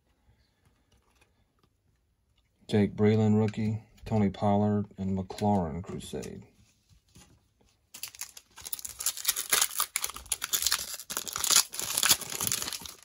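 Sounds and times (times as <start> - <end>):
cellophane wrapper tearing and crinkling: 7.9 - 13.0.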